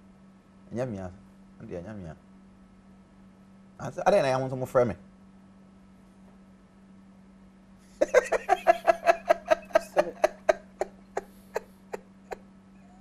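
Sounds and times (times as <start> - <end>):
man laughing: 8.0 - 12.4.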